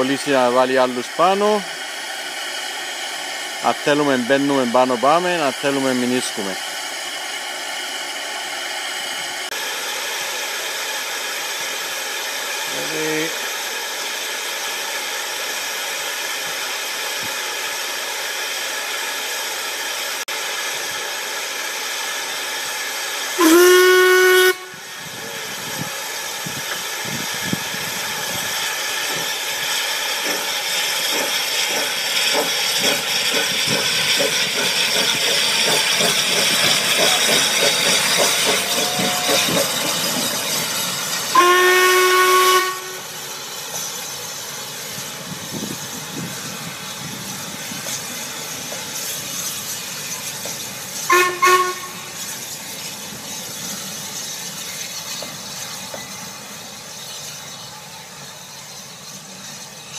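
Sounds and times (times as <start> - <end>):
steam hissing: 0.0 - 59.9
steam locomotive exhaust chuffs: 0.0 - 59.9
steam locomotive whistle: 23.4 - 25.0, 38.4 - 39.7, 41.3 - 43.3, 51.1 - 52.3.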